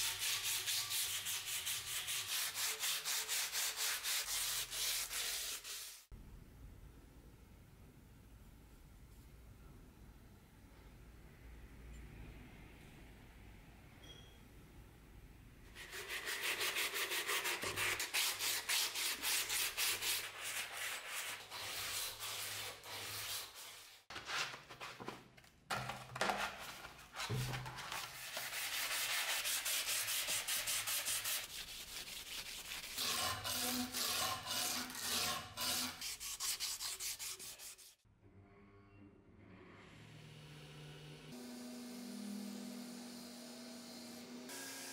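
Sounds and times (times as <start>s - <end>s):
sandpaper rubbing on metal blade: 0.0s - 6.1s, 15.8s - 24.0s, 27.9s - 38.0s.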